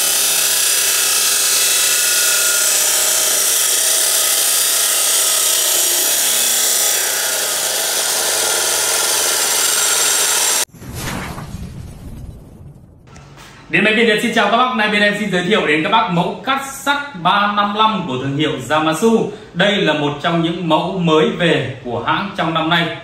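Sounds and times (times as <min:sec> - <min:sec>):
cut-off saw grinding steel: 0:00.0 - 0:10.7.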